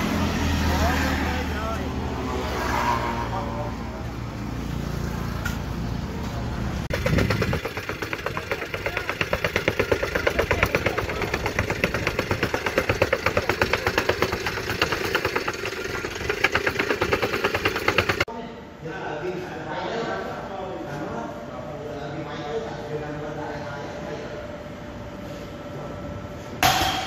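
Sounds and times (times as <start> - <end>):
construction machine pounding: 6.8 - 18.3.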